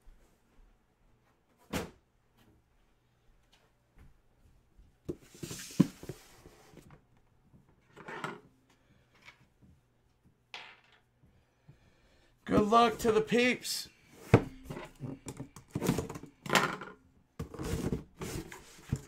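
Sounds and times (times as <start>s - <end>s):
box scuffing: 5.1s - 6.8s.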